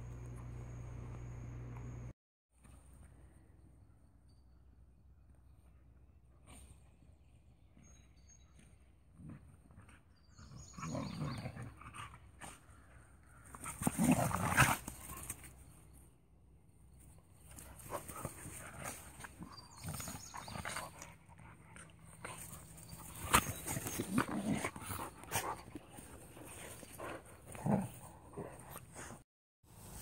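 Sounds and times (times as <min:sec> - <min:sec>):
dogs vocalising in rough play: 0:09.2 - 0:15.5, 0:17.5 - 0:29.2.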